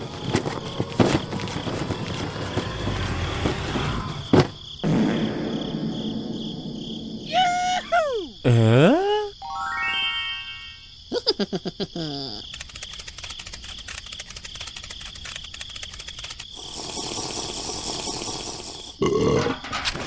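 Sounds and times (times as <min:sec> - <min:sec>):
rapid run of clicks: 0:12.4 - 0:19.0
hiss of water being stirred: 0:16.6 - 0:19.0.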